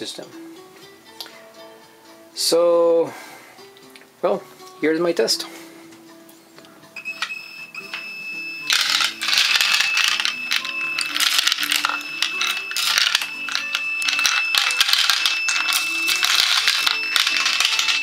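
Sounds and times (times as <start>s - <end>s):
background music: 0.0s - 18.0s
bullets rattling in plastic hopper: 8.7s - 18.0s.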